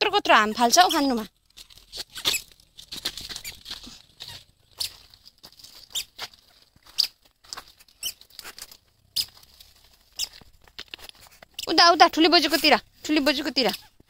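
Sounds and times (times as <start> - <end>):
squeaker sandals chirping: 0.2 - 14.0
small feet scuffing on gravel: 1.9 - 11.5.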